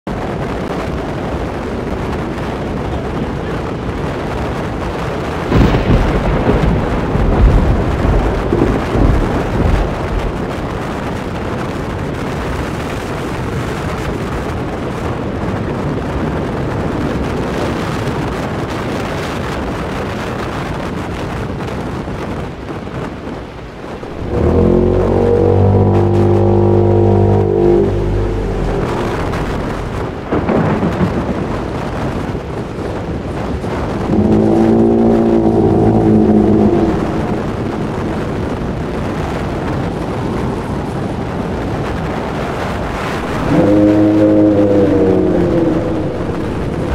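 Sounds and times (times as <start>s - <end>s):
rain: 0.1s - 46.9s
storm wind: 0.1s - 46.9s
thunder rumbling: 4.8s - 13.3s, 23.9s - 46.9s
deep monster roar: 5.5s - 10.8s, 24.0s - 30.2s, 33.8s - 38.6s, 43.2s - 46.9s.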